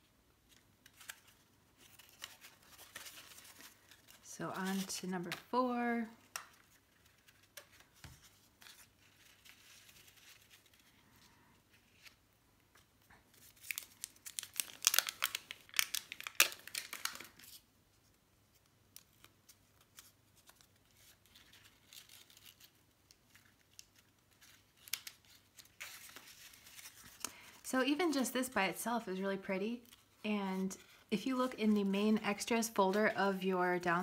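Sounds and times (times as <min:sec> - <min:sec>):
paper crinkling and crackling: 0:00.5 - 0:17.6, 0:18.5 - 0:28.5.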